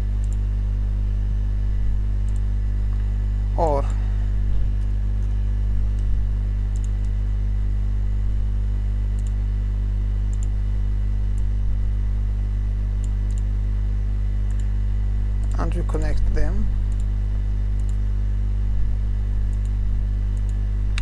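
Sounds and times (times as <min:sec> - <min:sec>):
electrical mains hum: 0:00.0 - 0:21.0
computer mouse clicks: 0:00.2 - 0:00.4, 0:02.2 - 0:02.5, 0:06.7 - 0:07.2, 0:09.2 - 0:09.4, 0:10.3 - 0:10.6, 0:13.0 - 0:13.5, 0:14.5 - 0:14.7, 0:17.8 - 0:18.0, 0:19.5 - 0:19.8, 0:20.4 - 0:21.0.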